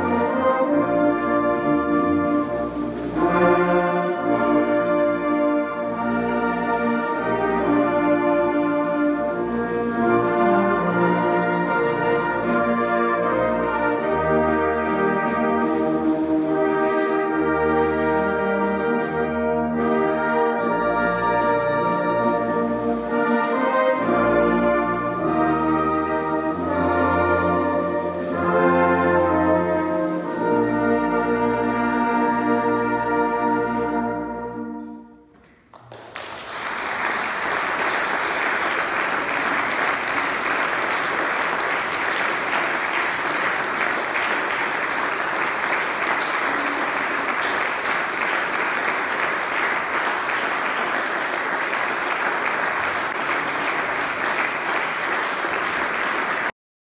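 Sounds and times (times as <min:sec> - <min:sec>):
brass band chord: 0:00.0 - 0:35.3, 0:37.4 - 0:56.5
audience applauding: 0:35.4 - 0:56.5.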